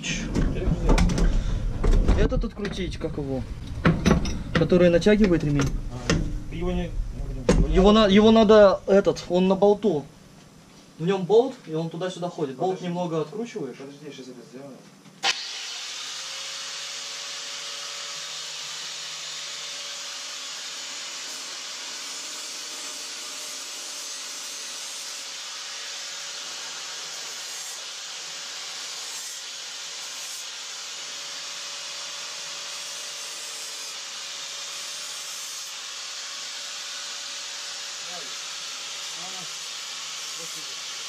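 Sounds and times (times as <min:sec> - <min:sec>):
power tool motor humming: 0:15.2 - 0:41.0.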